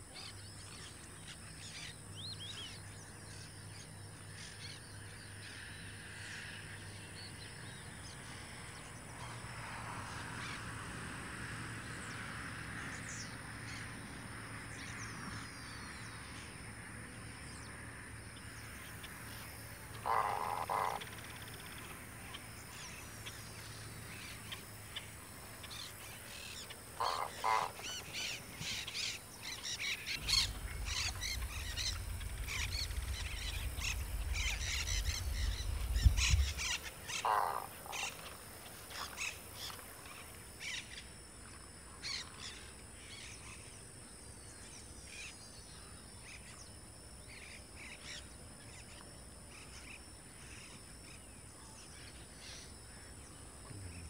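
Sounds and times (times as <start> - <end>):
birds chirping and calling: 19.3 - 39.8
lower bird call: 25.6 - 38.3
low rumble: 29.4 - 37.2.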